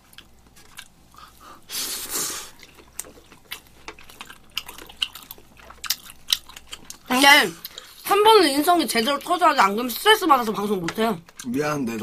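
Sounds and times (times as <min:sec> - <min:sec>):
chewing: 0:00.0 - 0:01.6, 0:02.3 - 0:08.1, 0:11.2 - 0:12.0.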